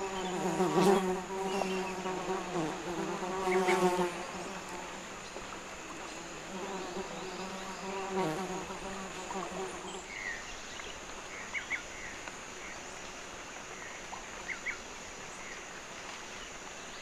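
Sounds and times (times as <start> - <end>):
flying insect buzzing: 0.0 - 5.2, 5.8 - 10.1.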